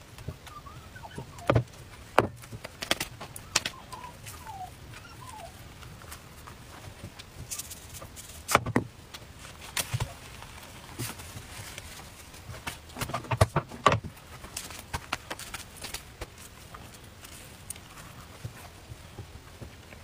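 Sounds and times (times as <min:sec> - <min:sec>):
taps and knocks on wooden board: 0:01.5 - 0:03.0.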